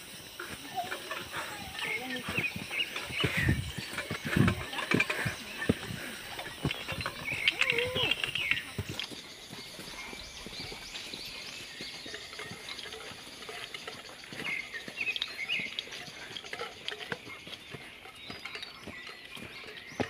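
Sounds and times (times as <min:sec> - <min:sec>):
leaves rustling: 0:00.0 - 0:15.0
birds chirping: 0:00.0 - 0:20.0
footsteps crunching on dirt trail: 0:00.0 - 0:20.0.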